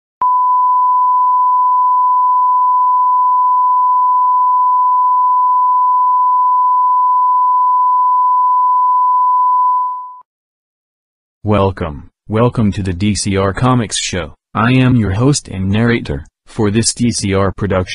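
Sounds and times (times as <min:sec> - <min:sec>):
steady test tone beep: 0:00.2 - 0:10.2.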